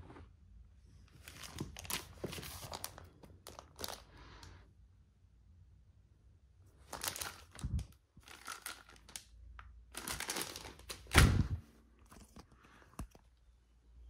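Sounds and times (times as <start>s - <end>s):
packaging crinkling: 1.2s - 4.2s, 6.8s - 13.3s.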